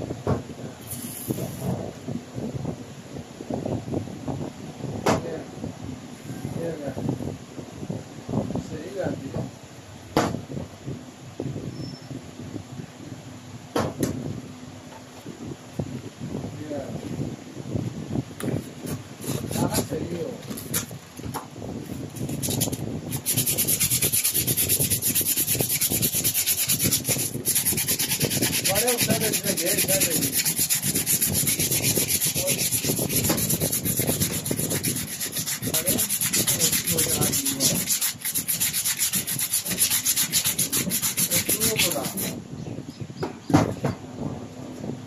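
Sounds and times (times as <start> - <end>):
sandpaper scraping metal: 19.2 - 20.9, 22.1 - 42.4.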